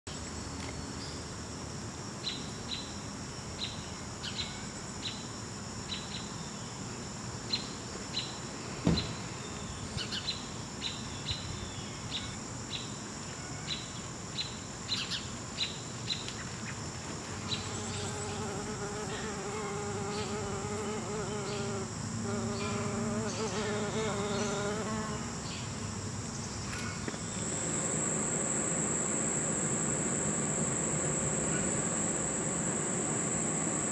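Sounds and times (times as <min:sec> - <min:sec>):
crickets trilling: 0:00.1 - 0:33.9
short insect chirp: 0:00.1 - 0:33.9
single knock: 0:08.8 - 0:09.1
wavering insect buzz: 0:12.1 - 0:33.9.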